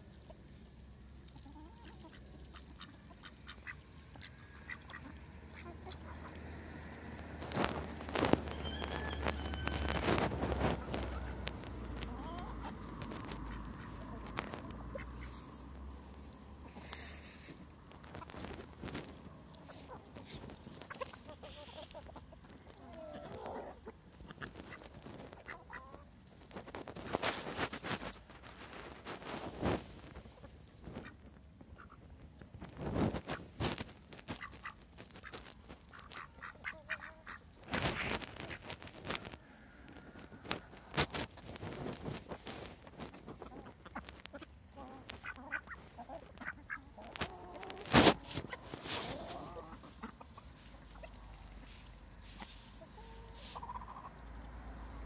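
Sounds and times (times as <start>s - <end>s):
ducks quacking quietly: 0.0s - 8.8s, 10.5s - 55.0s
chickens clucking: 0.0s - 55.0s
chicken calls: 1.3s - 26.1s, 34.2s - 54.8s
sharp taps and rustles: 7.2s - 15.7s, 45.0s - 49.4s.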